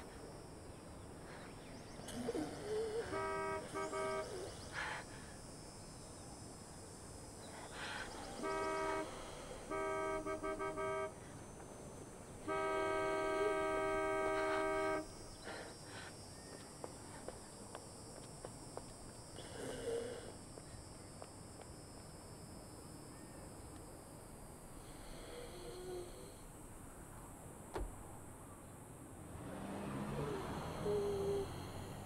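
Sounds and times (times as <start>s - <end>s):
car horn honking: 3.1s - 4.5s, 8.4s - 11.2s, 12.4s - 15.2s.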